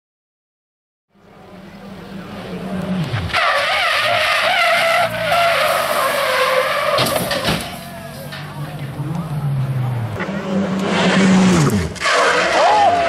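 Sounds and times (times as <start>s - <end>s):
rally car engine: 1.1s - 13.0s
tyres squealing: 3.1s - 8.7s.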